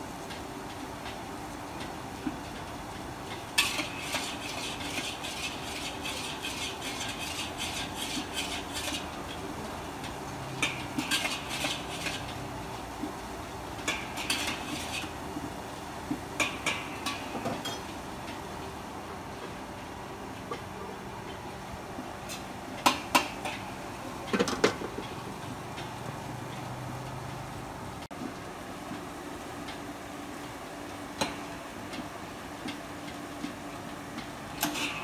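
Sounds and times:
metal spatula scraping a wok: 3.6 - 9.1, 10.6 - 12.4, 13.9 - 15.2, 34.6 - 35.0.

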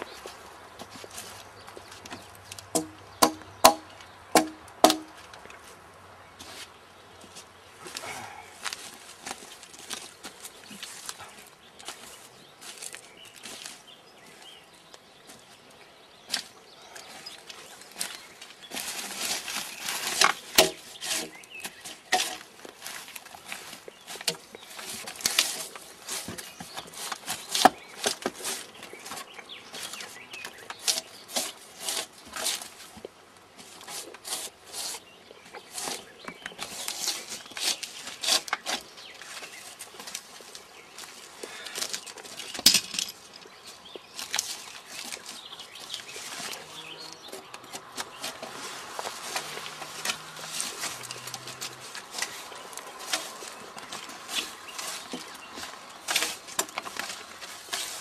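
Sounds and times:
sharp knock: 2.8 - 5.1
drawknife scraping a log: 18.8 - 23.0, 24.2 - 28.8, 29.8 - 32.9, 33.6 - 39.8, 47.5 - 58.0.

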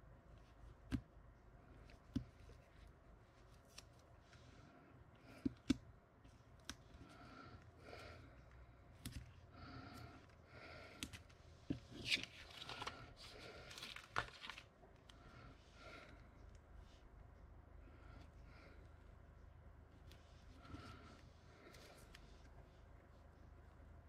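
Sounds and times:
paper strips rustling: 11.9 - 14.7.

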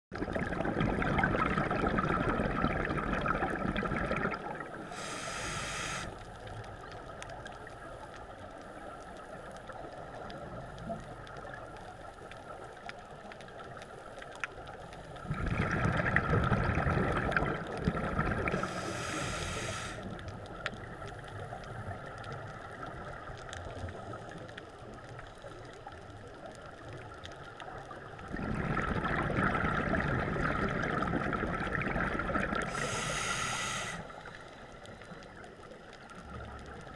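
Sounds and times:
exhaled bubbles through regulator: 0.1 - 6.2, 15.2 - 20.2, 28.0 - 34.0
muffled underwater hiss: 1.2 - 36.9
regulator inhalation hiss: 4.8 - 6.2, 18.5 - 20.1, 32.6 - 34.5.

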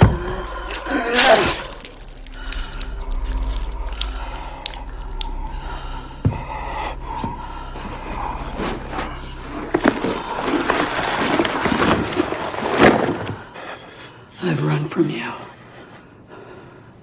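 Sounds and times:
low drone tones: 0.0 - 13.6.

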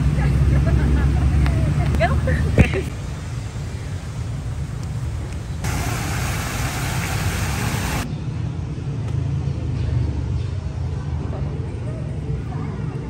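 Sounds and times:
loud hiss: 5.6 - 8.1.

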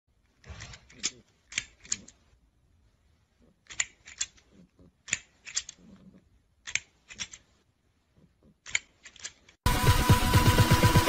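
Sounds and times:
plastic grabber toy clacking: 3.6 - 5.9, 8.6 - 9.6.

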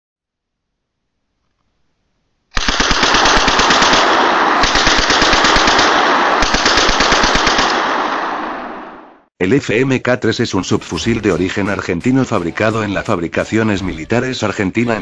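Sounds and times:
submachine gun automatic fire: 2.6 - 8.6.

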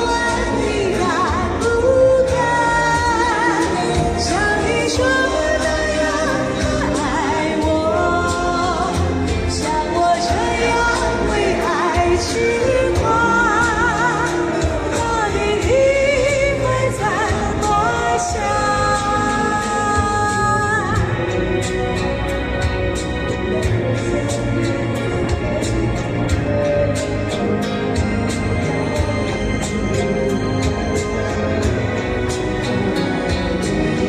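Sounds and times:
woman singing a pop ballad: 0.0 - 22.0
backing track with steady beat: 0.0 - 34.0.

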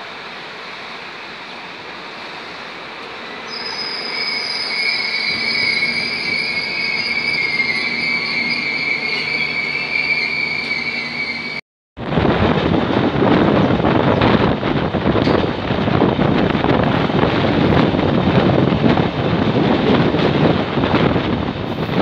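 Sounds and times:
train coaches rolling: 0.0 - 22.0
high steady wheel squeal: 3.2 - 11.6
wind on microphone: 12.0 - 22.0.

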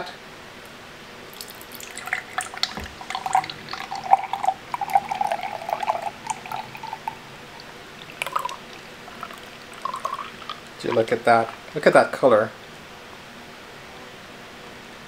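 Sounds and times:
drink splashing into glass: 1.4 - 11.8.

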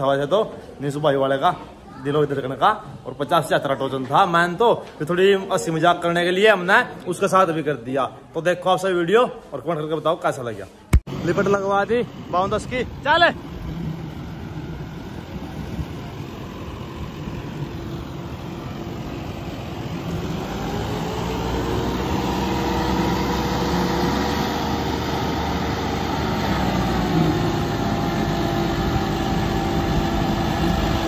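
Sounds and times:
tractor engines under heavy load: 11.0 - 31.0.

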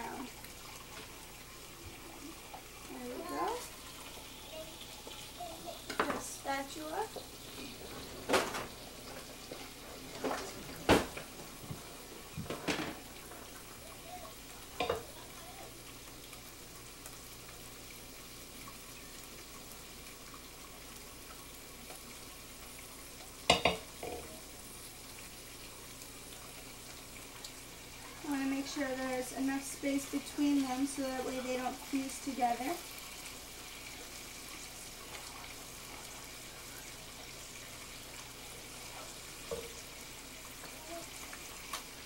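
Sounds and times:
bacon sizzling in a frying pan: 0.0 - 42.0
spatula clacking on pans: 23.5 - 24.3.

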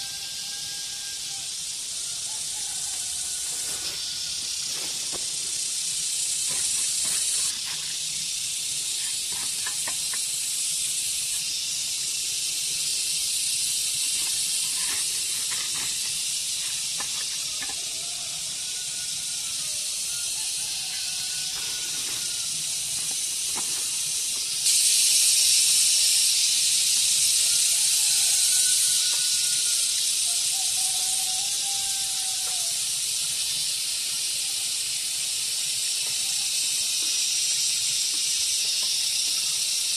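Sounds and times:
cicadas chorus: 0.0 - 39.9
trowel scraping dry soil: 3.4 - 5.6, 6.2 - 10.4, 14.0 - 18.0.

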